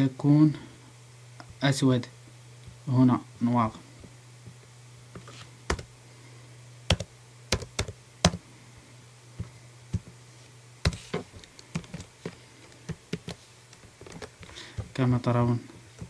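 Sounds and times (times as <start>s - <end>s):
steady low hum: 0.0s - 16.0s
keyboard keystrokes: 6.9s - 8.4s.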